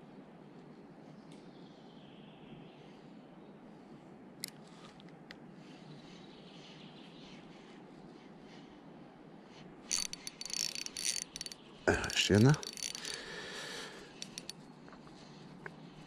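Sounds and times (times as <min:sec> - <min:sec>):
metallic clinking and rattling: 0:09.9 - 0:13.3, 0:14.2 - 0:14.6
faint clicks: 0:09.9 - 0:13.4, 0:14.2 - 0:15.8.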